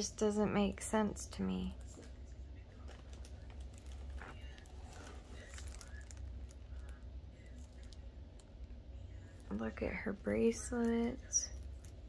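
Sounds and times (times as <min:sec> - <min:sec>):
low steady rumble: 0:00.0 - 0:12.0
plastic film crinkling: 0:01.8 - 0:08.5.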